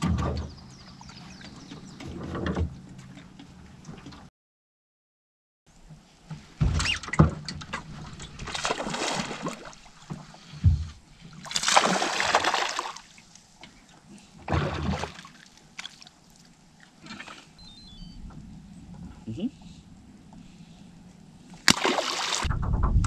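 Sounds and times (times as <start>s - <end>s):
fish splashing and thrashing: 7.5s - 13.3s, 14.4s - 17.6s, 21.6s - 22.6s.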